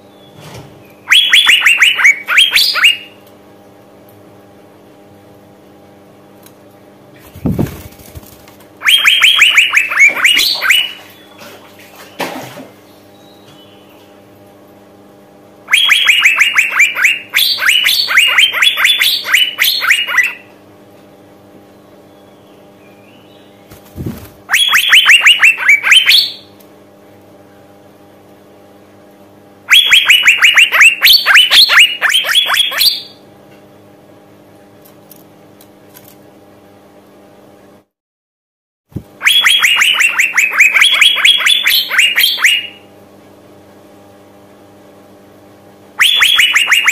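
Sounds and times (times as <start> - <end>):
faint steady hum: 0.0 - 37.9, 38.9 - 46.9
bird calling rapid sharp notes: 1.1 - 3.2, 8.8 - 11.3, 15.7 - 20.4, 23.7 - 26.5, 29.7 - 33.2, 39.2 - 42.8, 46.0 - 46.9.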